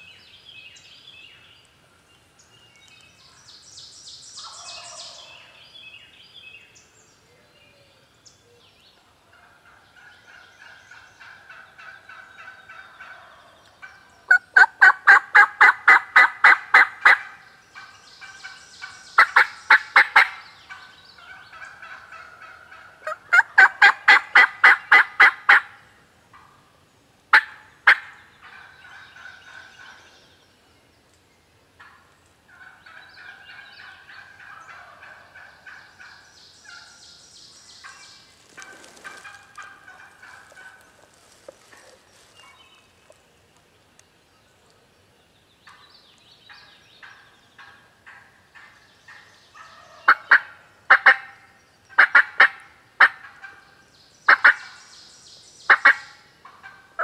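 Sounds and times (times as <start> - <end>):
faint turkey calling: 4.4 - 5.6, 7.2 - 30.5, 31.8 - 43.7, 45.6 - 54.9, 55.6 - 57.0
turkey yelping: 14.3 - 17.4.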